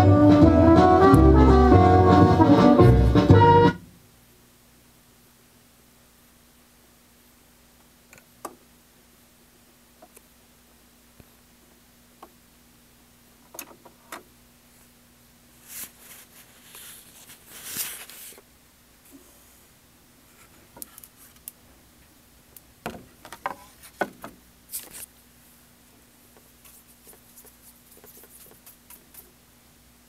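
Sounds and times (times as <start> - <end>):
faint steady hum: 0.0 - 30.0
rustling: 15.6 - 18.4, 26.3 - 29.4.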